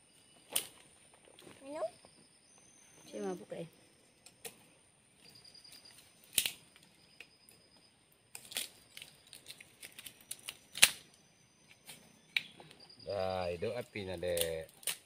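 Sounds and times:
twigs snapping and crackling: 6.2 - 6.9, 8.3 - 12.7, 14.2 - 15.0.

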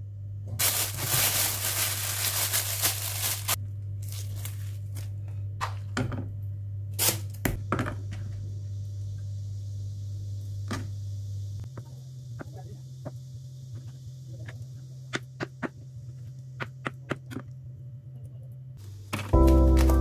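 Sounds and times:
steady low hum: 0.0 - 20.0
plastic bag crinkling: 0.6 - 5.0.

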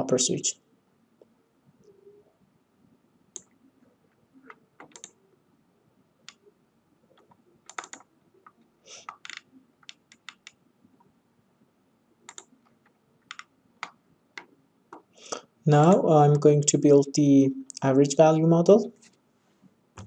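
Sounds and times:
mouse and keyboard clicking: 4.4 - 5.2, 7.2 - 10.6, 12.3 - 12.5, 13.3 - 15.1.

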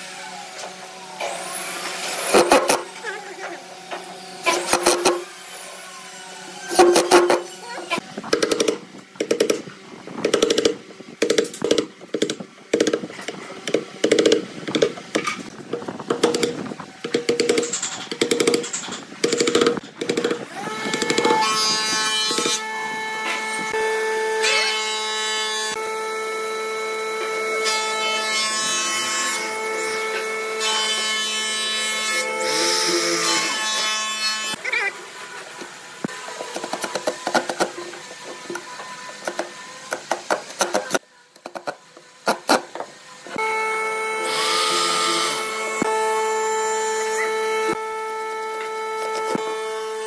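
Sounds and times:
mallet striking chisel: 6.7 - 7.5, 8.3 - 9.6
power drill boring into wood: 19.4 - 21.5, 43.4 - 48.0.

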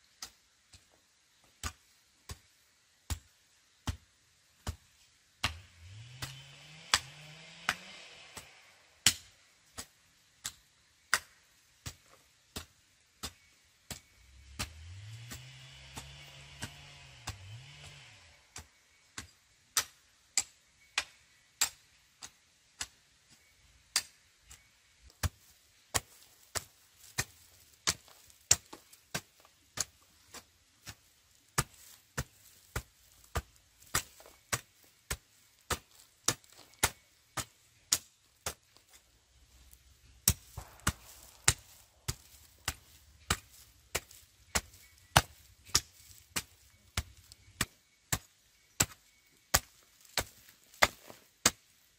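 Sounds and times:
sharp chopping strikes: 5.4 - 12.0, 12.6 - 21.8, 31.6 - 51.7.

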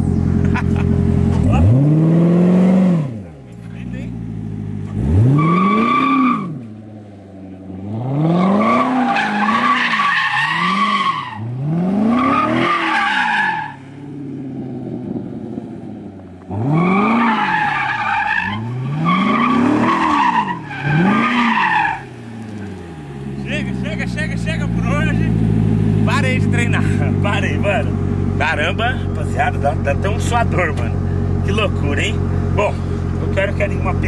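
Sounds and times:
car engine revving: 0.0 - 34.0
tyres squealing: 16.8 - 25.1.

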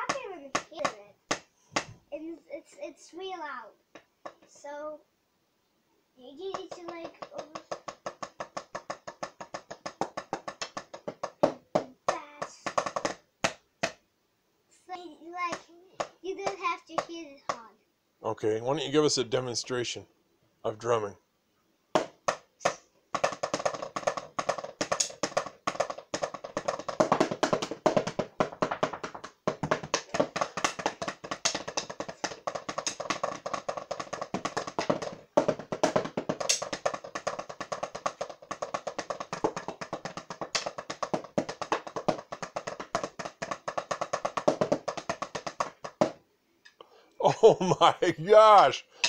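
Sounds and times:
drumsticks tapping practice pads: 0.0 - 2.0, 3.9 - 4.5, 6.4 - 14.0, 15.5 - 17.6, 21.9 - 46.8.

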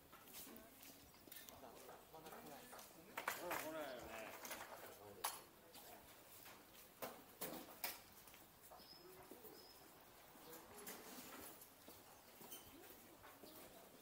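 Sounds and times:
soft footsteps: 0.0 - 3.9, 8.1 - 14.0.

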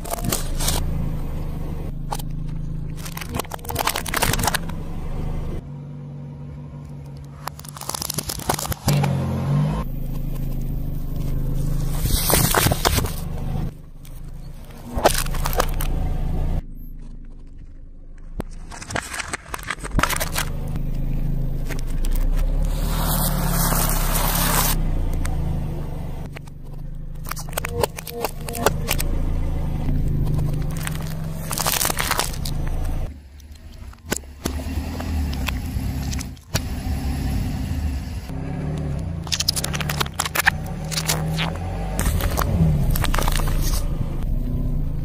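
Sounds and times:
car idling: 0.0 - 45.0
tyre crushing packaging: 2.9 - 4.7, 7.4 - 9.2, 11.9 - 13.2, 14.7 - 15.9, 18.4 - 20.7, 27.2 - 29.1, 30.0 - 34.2, 39.2 - 43.9.

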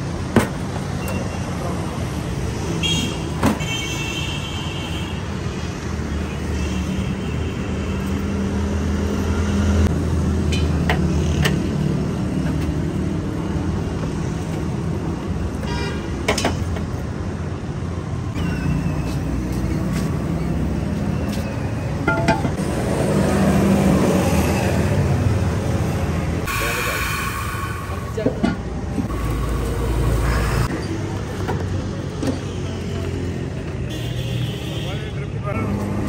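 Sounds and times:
traffic engine rumble: 0.0 - 36.0
vehicle horns honking: 33.9 - 35.3.

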